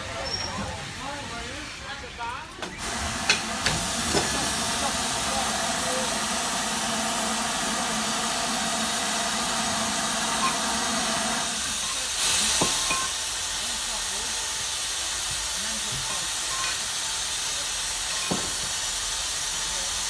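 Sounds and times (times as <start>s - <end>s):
steam hiss: 2.8s - 20.0s.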